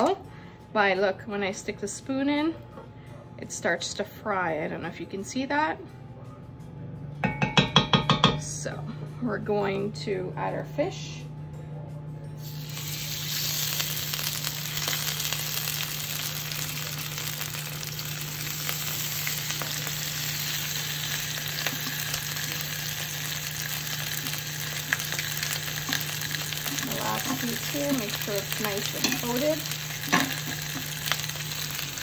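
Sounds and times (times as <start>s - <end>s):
fish sizzling in hot oil: 12.4s - 32.0s.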